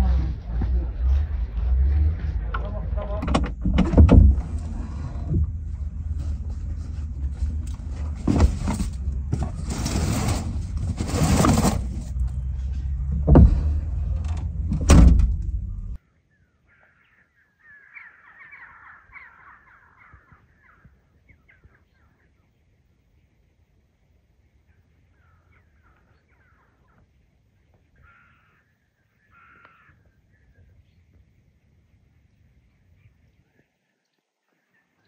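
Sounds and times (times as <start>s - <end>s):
steady low rumble: 0.0s - 16.0s
brushwood rustling and knocking: 2.5s - 15.7s
tailgate slamming shut: 3.2s - 4.7s, 13.1s - 15.8s
faint crow caws: 16.3s - 21.8s, 25.1s - 27.1s, 27.8s - 30.6s.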